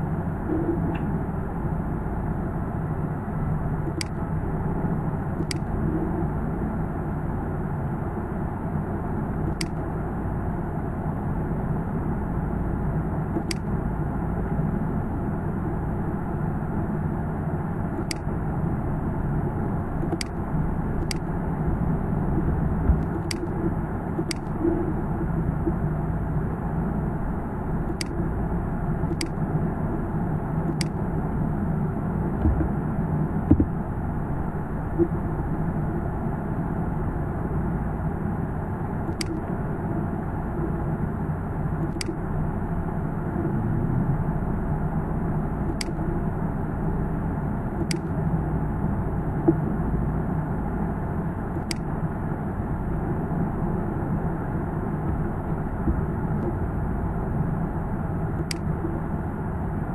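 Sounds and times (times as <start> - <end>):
low background rumble: 0.0 - 59.9
computer mouse clicks: 3.9 - 4.2, 5.4 - 5.8, 9.5 - 9.8, 13.4 - 13.8, 18.0 - 18.3, 20.0 - 20.4, 21.0 - 21.3, 22.9 - 24.6, 27.9 - 28.2, 29.1 - 29.4, 30.7 - 31.0, 39.1 - 39.5, 41.8 - 42.2, 45.7 - 46.0, 47.8 - 48.1, 51.6 - 51.9, 58.4 - 58.7.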